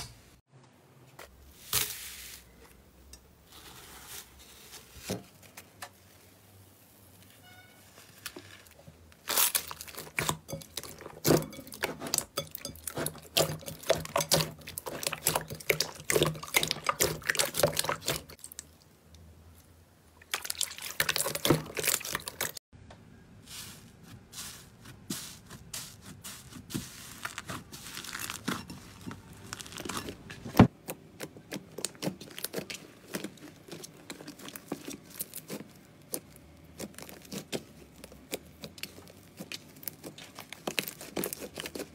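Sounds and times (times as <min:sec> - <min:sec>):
hands squishing slime: 0:09.3 - 0:18.8, 0:24.0 - 0:41.9.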